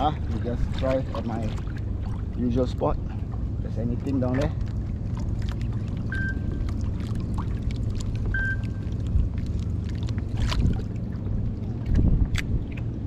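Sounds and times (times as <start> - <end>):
water lapping against kayak hull: 0.0 - 13.0
short beeps: 6.1 - 6.5, 8.3 - 8.8
wind buffeting microphone: 10.2 - 13.0.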